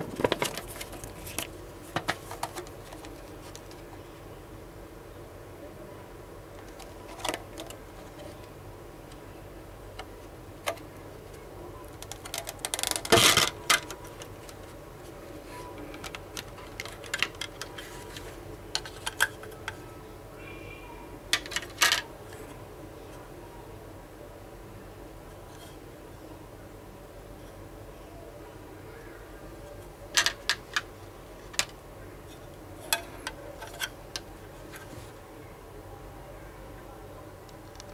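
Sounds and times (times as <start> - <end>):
plastic tray clicking and crackling: 0.0 - 3.9, 11.9 - 14.7, 15.8 - 19.8, 21.4 - 22.1
plastic crinkling: 12.0 - 14.8.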